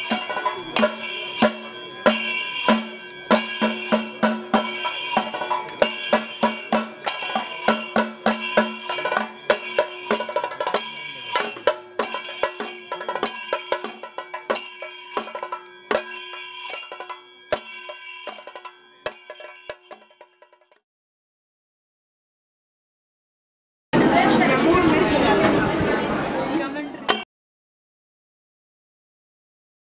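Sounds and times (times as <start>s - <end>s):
cymbal clashes: 0.0s - 20.6s
held steady tone: 0.0s - 20.7s
drum strokes: 0.0s - 20.8s.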